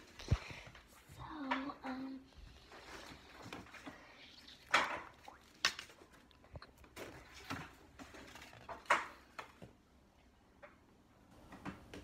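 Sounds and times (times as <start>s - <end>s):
rustling: 2.3s - 9.7s.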